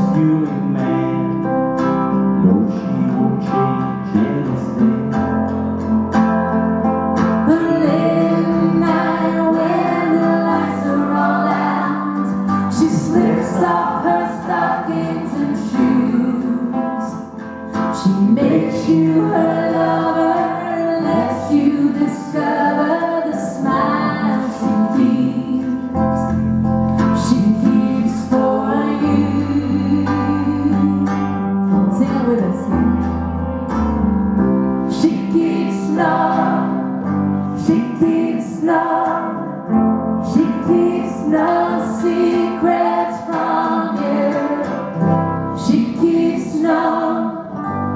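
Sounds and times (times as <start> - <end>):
electric guitars: 0.0 - 47.9
keyboard: 0.0 - 47.9
strummed ukulele: 0.0 - 47.9
woman singing: 7.4 - 26.4, 27.0 - 33.1, 34.9 - 36.8, 37.6 - 39.6, 40.2 - 44.9, 45.6 - 47.8.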